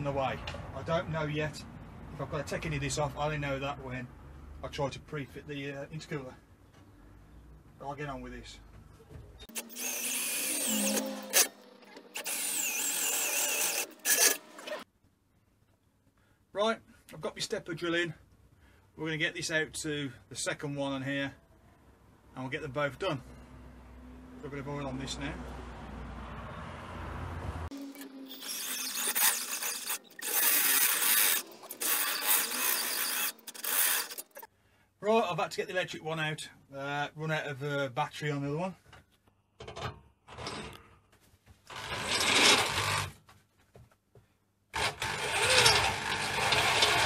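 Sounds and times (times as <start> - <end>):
drill bit squealing into metal: 9.5 - 14.8, 27.8 - 34.5, 44.8 - 47.0.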